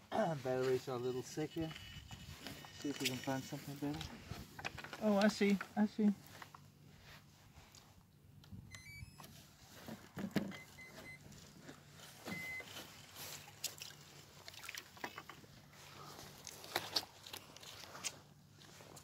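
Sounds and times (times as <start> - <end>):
knocks and handling noises: 1.7 - 6.6
electronic beeps and chirps: 12.3 - 12.6.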